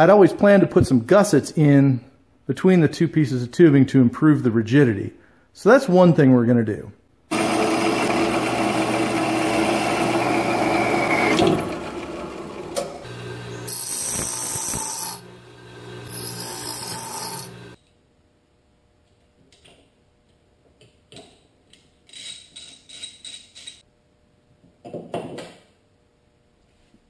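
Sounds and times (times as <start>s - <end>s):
bench grinder grinding metal: 7.3s - 17.8s
hand wrench clicks: 21.7s - 23.8s.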